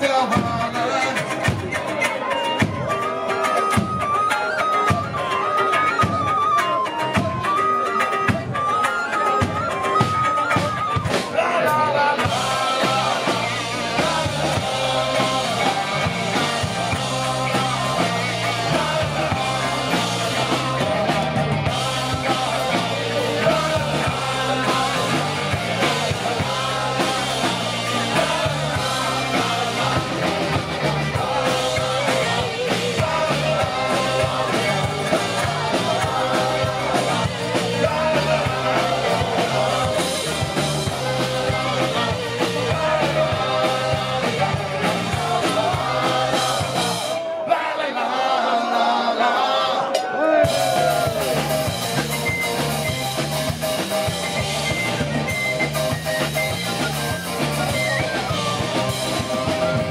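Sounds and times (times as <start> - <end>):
electric guitar: 0.0 - 47.2, 50.4 - 59.9
bass guitar: 0.0 - 47.3, 50.4 - 59.9
drum kit: 0.0 - 47.5, 49.9 - 59.9
person singing: 0.0 - 47.9.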